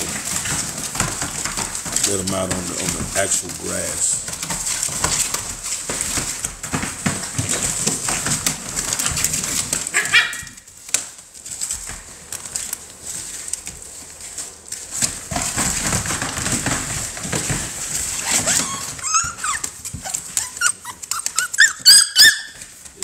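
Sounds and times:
scratching and rustling: 0:00.0 - 0:23.0
puppies whining and yelping: 0:18.0 - 0:22.8.

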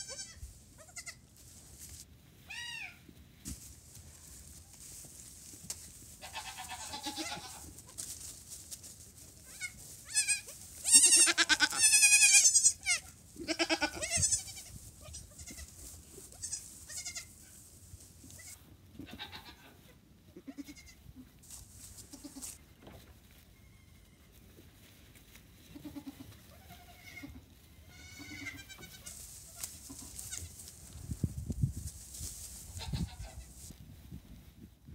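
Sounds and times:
goat kids bleating: 0:00.0 - 0:01.4, 0:02.4 - 0:03.2, 0:06.2 - 0:08.0, 0:09.4 - 0:17.6, 0:18.2 - 0:21.3, 0:22.0 - 0:22.6, 0:25.6 - 0:30.7, 0:32.7 - 0:33.6.

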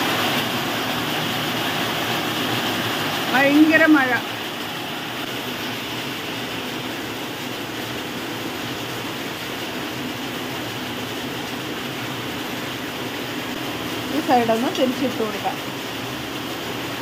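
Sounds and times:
heavy rain falling: 0:00.0 - 0:17.0.

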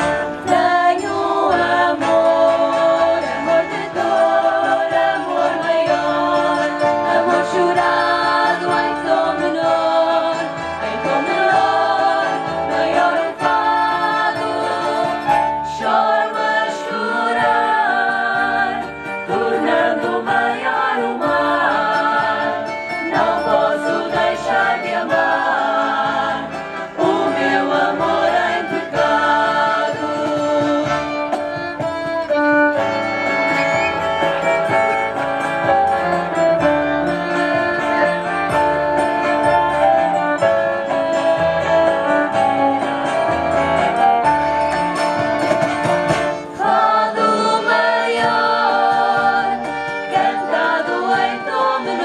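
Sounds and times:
women singing together: 0:00.0 - 0:31.3, 0:46.4 - 0:52.0
electric keyboard: 0:00.0 - 0:52.0
violin: 0:00.0 - 0:52.0.

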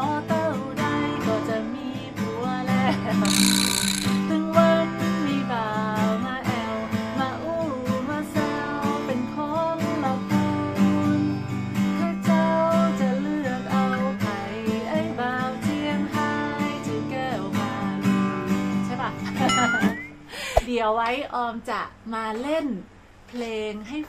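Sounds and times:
woman singing: 0:00.0 - 0:03.1, 0:04.3 - 0:11.3, 0:12.0 - 0:18.2.

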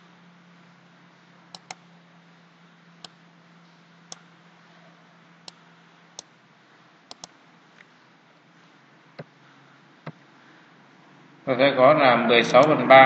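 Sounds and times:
computer mouse clicking: 0:01.5 - 0:01.8, 0:07.1 - 0:07.4.

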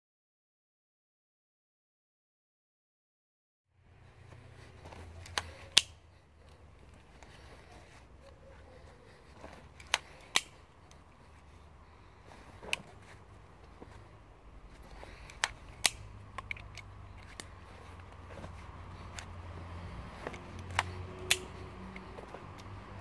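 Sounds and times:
small knife clicking: 0:15.2 - 0:17.5, 0:20.6 - 0:22.0.

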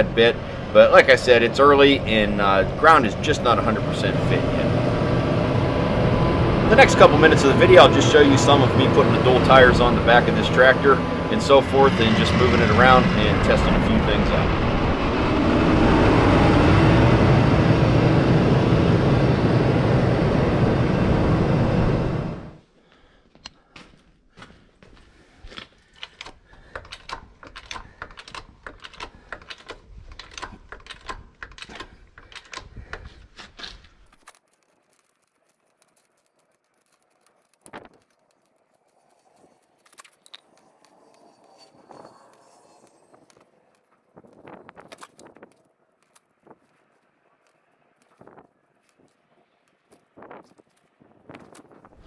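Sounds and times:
tractor diesel engine running: 0:00.0 - 0:22.6.

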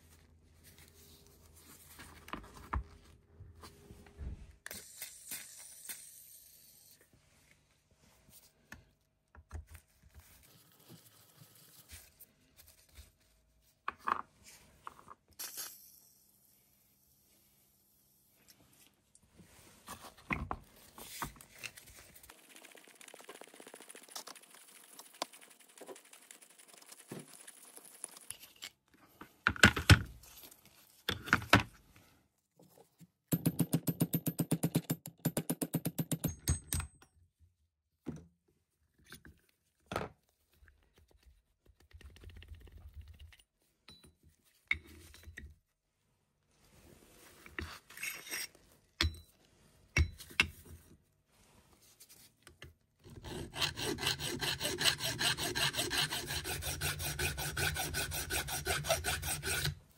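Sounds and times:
soft scraping and rubbing: 0:18.5 - 0:22.4, 0:46.5 - 0:48.8.

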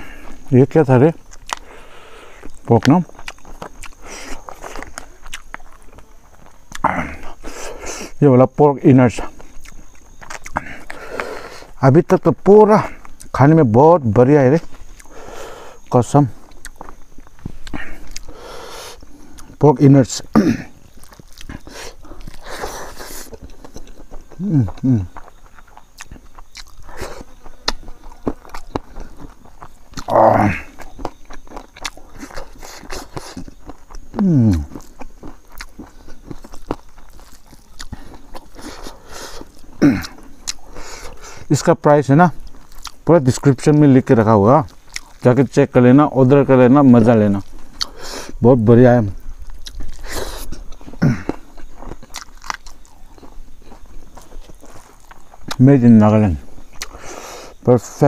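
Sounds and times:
person chewing: 0:01.2 - 0:08.2, 0:09.2 - 0:11.8, 0:12.8 - 0:13.4, 0:14.6 - 0:19.6, 0:20.3 - 0:41.5, 0:42.4 - 0:43.1, 0:44.6 - 0:45.5, 0:47.3 - 0:48.4, 0:49.2 - 0:55.6, 0:56.5 - 0:57.6
lip smacks: 0:01.3 - 0:01.8, 0:09.6 - 0:11.7, 0:30.8 - 0:41.5, 0:47.5 - 0:48.4, 0:49.5 - 0:55.6, 0:56.7 - 0:57.4
person humming: 0:24.4 - 0:25.1, 0:34.2 - 0:34.7.

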